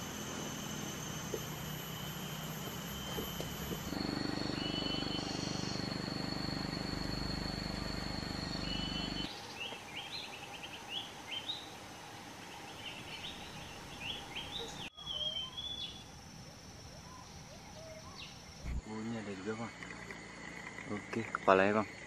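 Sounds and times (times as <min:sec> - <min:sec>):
low hum: 0:00.0 - 0:09.3, 0:16.0 - 0:21.4
high steady whine: 0:00.0 - 0:22.0
bird chirps: 0:02.0 - 0:11.7, 0:12.6 - 0:16.1, 0:16.9 - 0:18.8
bird whistling: 0:04.4 - 0:06.2, 0:06.8 - 0:09.3, 0:13.1 - 0:16.0.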